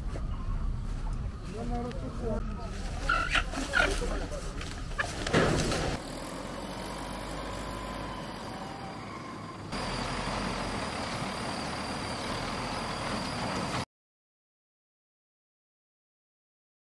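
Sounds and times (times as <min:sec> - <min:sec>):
wheel loader diesel engine running: 0:04.0 - 0:13.8.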